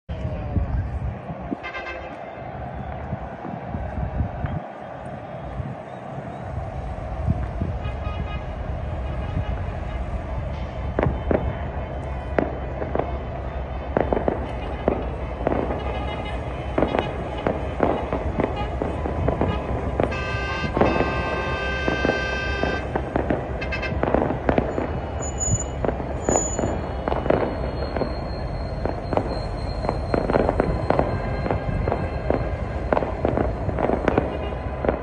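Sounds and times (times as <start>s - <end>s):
crowd and street din: 0.1s - 35.0s
firecrackers banging: 0.9s - 35.0s
long horn-like tone: 19.5s - 22.9s.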